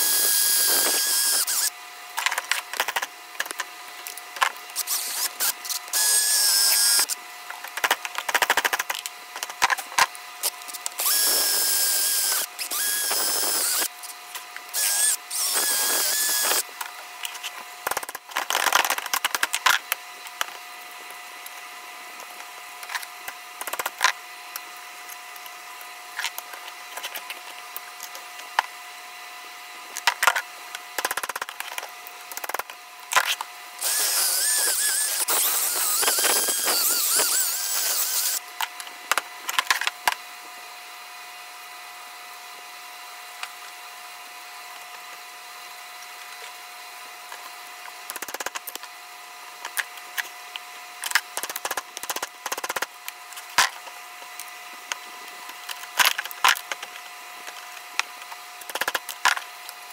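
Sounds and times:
power drill whirring: 0:00.0 - 0:01.7, 0:04.8 - 0:07.2, 0:10.7 - 0:14.0, 0:14.7 - 0:16.6, 0:33.8 - 0:38.4
hand tools clicking and scraping: 0:00.0 - 0:20.6, 0:31.0 - 0:40.2
steady background hum: 0:00.0 - 0:59.9.

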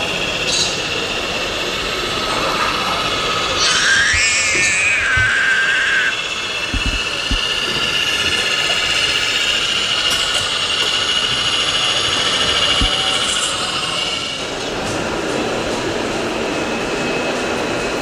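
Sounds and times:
toy truck motor whining: 0:02.3 - 0:14.4.

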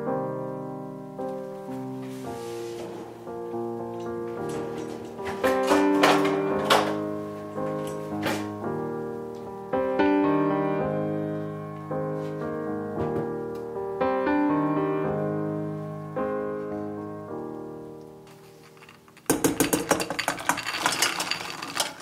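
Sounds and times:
slow solo piano: 0:00.0 - 0:19.2.

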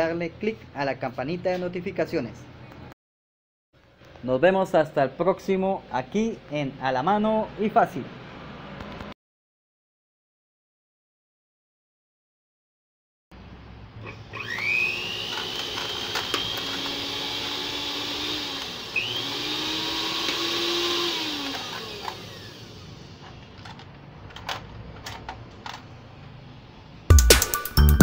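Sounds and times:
blender motor whining: 0:14.0 - 0:23.6.

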